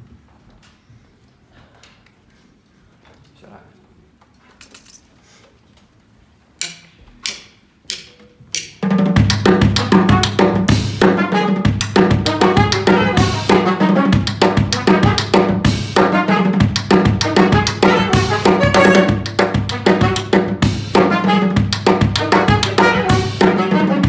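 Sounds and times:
drum kit played hard: 8.6s - 24.0s
live band playing: 8.7s - 24.0s.

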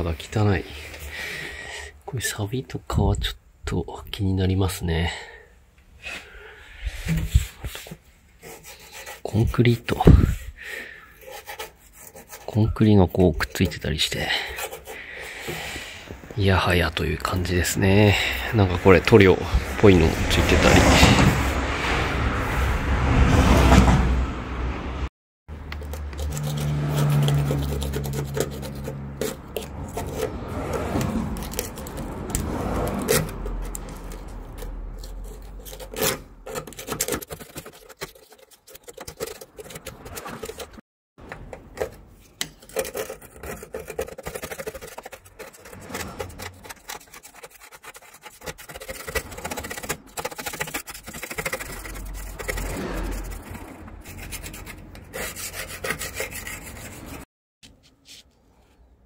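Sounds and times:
razor scraper on metal: 11.2s - 12.6s, 25.6s - 40.8s, 42.4s - 57.3s
block scrubbing metal floor: 25.6s - 40.8s, 41.8s - 57.3s.

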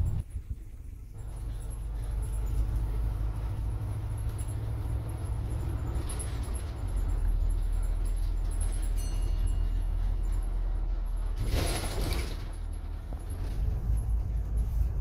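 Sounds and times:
bus engine and road rumble: 0.0s - 15.0s.

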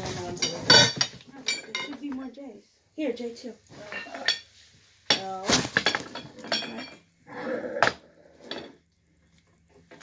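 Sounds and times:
metal tubes clinking and knocking: 0.0s - 2.4s, 3.8s - 7.2s, 7.8s - 8.9s.

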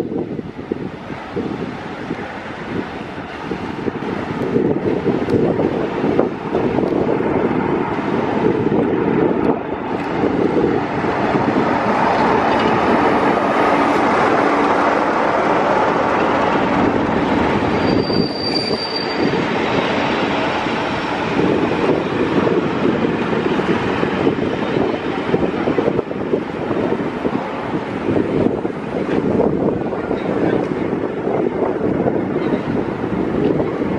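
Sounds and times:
diesel locomotive passing: 0.0s - 33.9s
train wheels rumbling on rail: 0.0s - 33.9s
high brake squeal: 17.6s - 19.9s.

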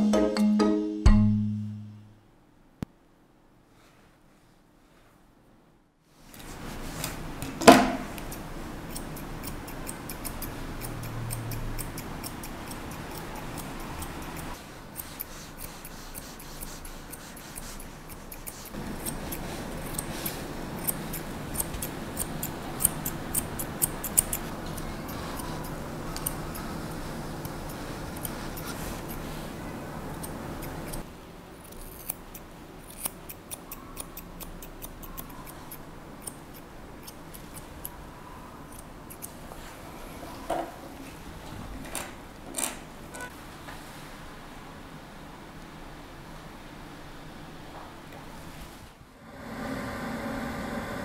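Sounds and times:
scissors snipping hair: 8.2s - 26.7s, 27.4s - 29.3s, 30.1s - 38.0s.

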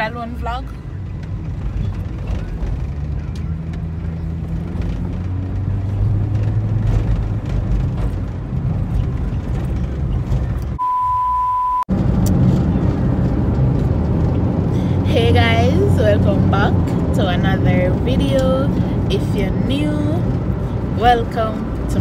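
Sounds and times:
car cabin engine and road noise: 0.0s - 22.0s
high test-tone beep: 10.8s - 11.8s.

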